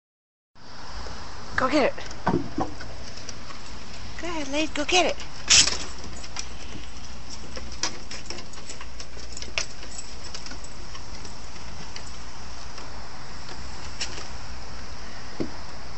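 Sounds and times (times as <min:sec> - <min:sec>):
outdoor background hiss: 0:00.6 - 0:15.9
dog claws clicking on wood: 0:05.1 - 0:14.3.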